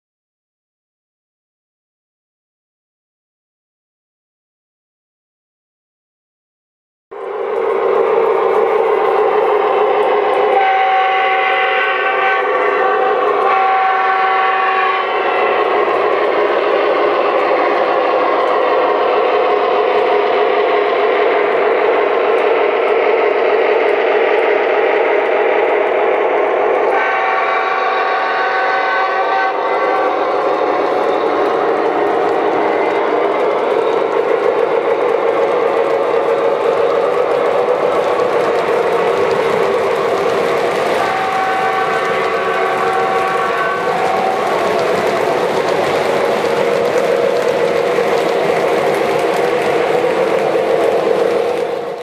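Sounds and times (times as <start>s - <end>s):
train horn blasts: 9.6s - 18.3s, 26.3s - 33.1s, 40.5s - 45.4s
wheels clicking on track: 29.6s - 52.0s.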